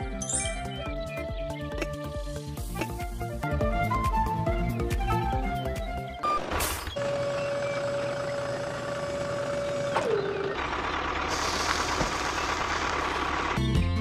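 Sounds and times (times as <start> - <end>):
hydraulic whine: 6.9 - 12.9.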